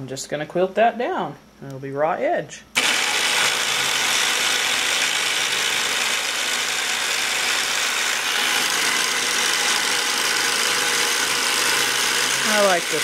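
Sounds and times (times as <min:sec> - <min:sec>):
quilting machine stitching: 0:02.8 - 0:13.0.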